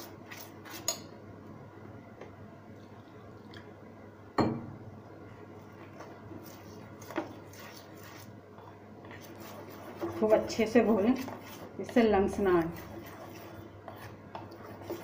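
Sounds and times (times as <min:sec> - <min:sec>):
spoon stirring wet batter: 0:00.0 - 0:01.2, 0:05.4 - 0:15.0.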